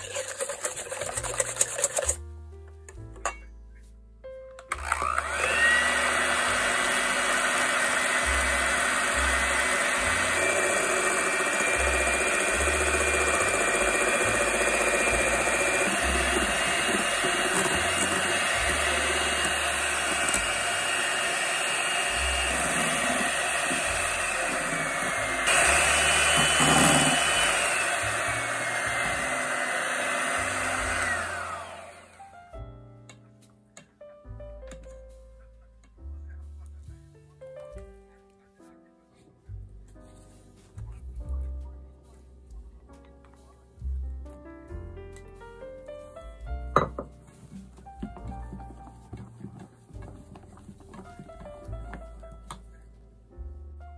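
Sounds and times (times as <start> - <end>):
electric hand mixer whining: 4.7 - 32.4.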